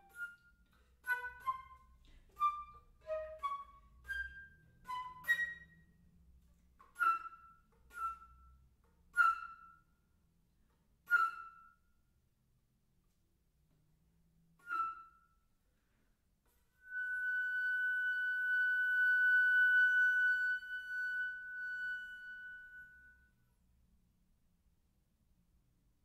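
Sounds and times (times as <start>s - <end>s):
solo flute: 0.0s - 6.0s, 6.8s - 9.9s, 11.0s - 11.9s, 14.6s - 15.5s, 16.8s - 23.4s.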